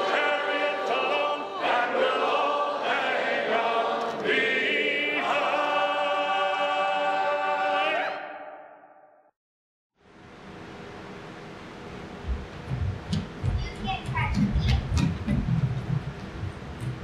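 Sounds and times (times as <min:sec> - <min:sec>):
choir singing long chords: 0:00.0 - 0:09.3.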